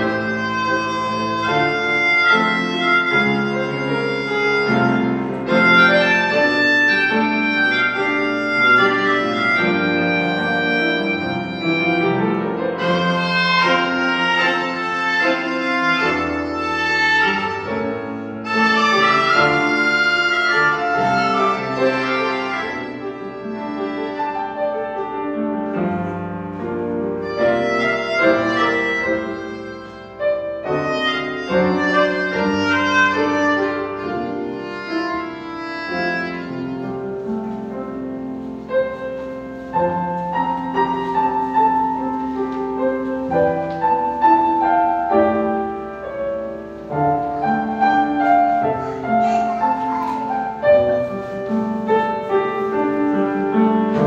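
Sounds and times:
accordion melody: 0.0s - 54.0s
piano accompaniment: 0.0s - 54.0s.

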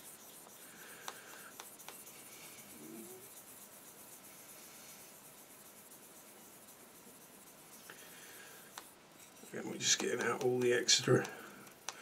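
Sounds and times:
sanding stick rasping on plastic: 0.0s - 7.9s.

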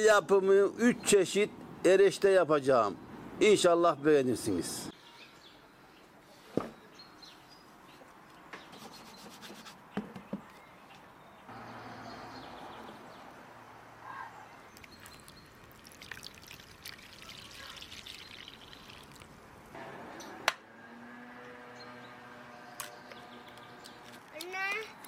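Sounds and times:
water pouring and splashing: 14.7s - 19.8s.

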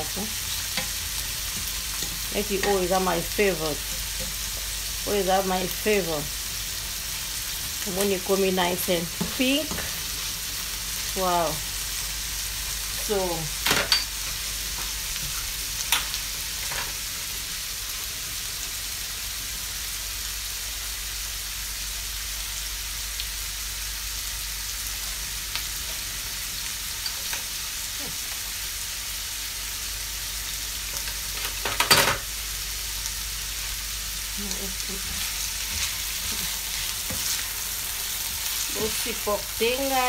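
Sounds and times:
shrimp sizzling in oil: 0.0s - 40.0s.

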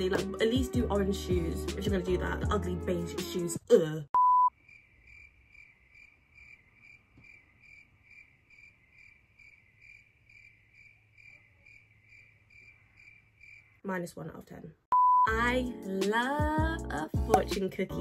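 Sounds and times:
loud beep tone: 4.2s - 4.5s, 14.9s - 15.3s
cricket chirps: 4.2s - 13.9s.

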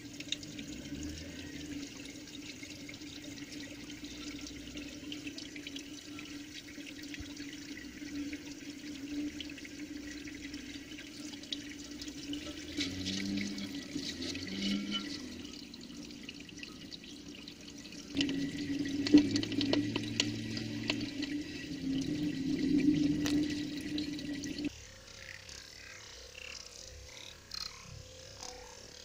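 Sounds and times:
low steady hum: 0.0s - 24.7s
underwater rush with crackles: 17.8s - 24.7s.

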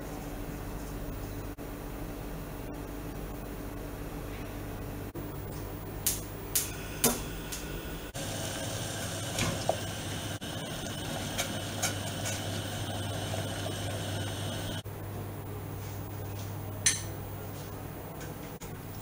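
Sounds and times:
steady low hum: 0.0s - 18.0s
gas burner igniter clicking: 6.1s - 7.8s
water boiling in a pot: 6.6s - 14.8s.

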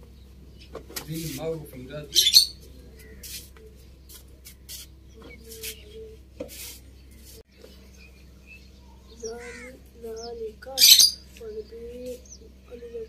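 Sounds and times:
steady low hum: 0.0s - 13.0s
crows cawing: 2.1s - 3.3s, 9.0s - 10.2s.

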